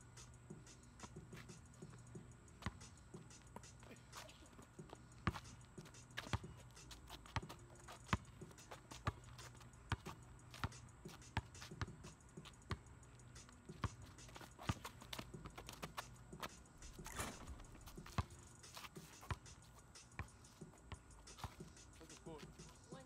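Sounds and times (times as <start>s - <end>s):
basketball bouncing: 16.9s - 18.4s.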